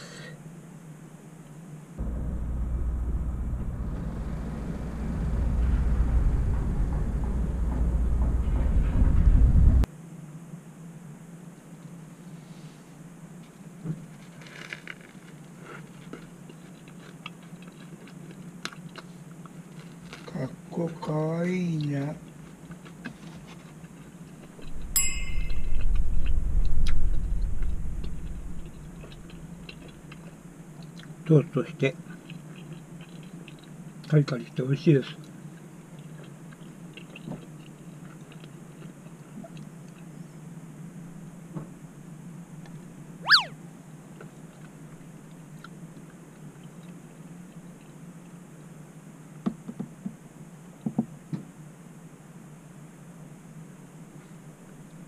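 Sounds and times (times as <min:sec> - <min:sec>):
low hum: 0:02.0 - 0:09.9, 0:24.5 - 0:29.9, 0:43.2 - 0:43.6
low rumble: 0:02.0 - 0:09.9, 0:24.7 - 0:29.4
metallic ding: 0:25.0 - 0:25.8.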